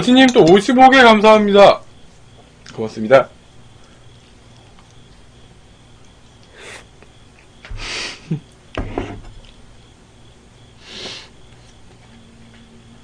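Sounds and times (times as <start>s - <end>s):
man sniffing and snorting: 6.5s - 7.0s, 7.7s - 8.3s, 10.8s - 11.4s.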